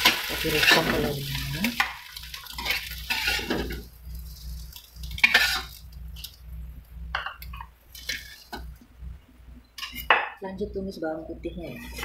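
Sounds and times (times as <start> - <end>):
metal spatula scraping a wok: 2.4 - 5.8, 11.6 - 12.0.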